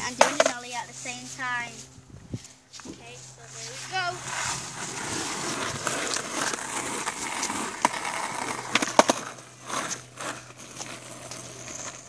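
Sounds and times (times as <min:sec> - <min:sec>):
skateboard clacks: 0:00.0 - 0:00.6, 0:04.2 - 0:12.0
skateboard wheels rolling: 0:00.0 - 0:01.2, 0:02.9 - 0:12.0
skateboard ollie pop and landing: 0:07.2 - 0:10.0.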